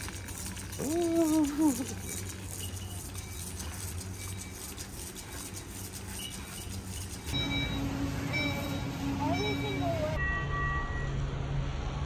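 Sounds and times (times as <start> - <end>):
shopping cart rattling on concrete: 0.0 - 7.6
steady low hum: 0.0 - 10.2.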